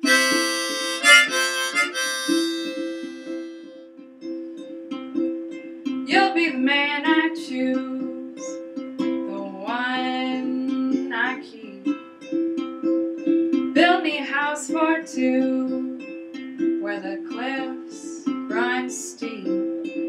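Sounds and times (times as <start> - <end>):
accordion chords: 0.0 - 3.8
harmonica phrases: 0.0 - 3.9
strummed ukulele: 0.0 - 20.0.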